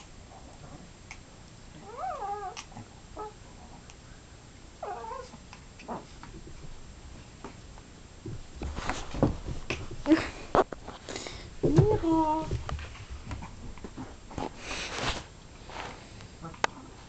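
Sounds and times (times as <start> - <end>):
pets yowling: 1.8 - 3.4, 4.8 - 6.0
light scuffling and knocks: 8.2 - 16.2.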